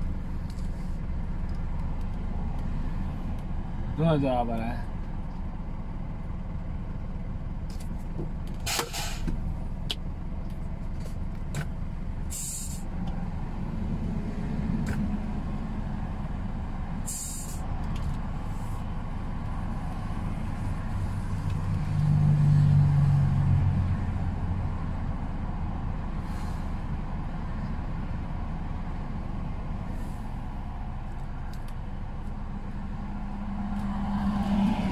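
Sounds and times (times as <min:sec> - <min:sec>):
truck diesel engine idling: 0:00.0 - 0:21.2
air brake hisses: 0:08.6 - 0:09.3, 0:12.3 - 0:12.9, 0:17.1 - 0:17.6, 0:26.2 - 0:26.8.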